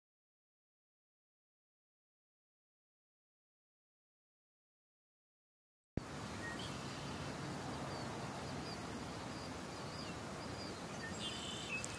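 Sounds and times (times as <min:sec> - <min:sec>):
steady background hiss: 0:06.0 - 0:11.9
short bird chirps: 0:10.0 - 0:11.9.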